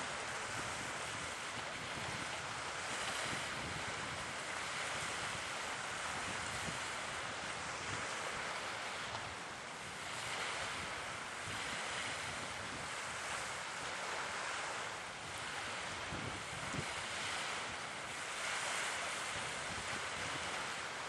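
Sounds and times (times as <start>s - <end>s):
sea surf: 0.0s - 21.0s
wind buffeting the microphone: 0.0s - 21.0s.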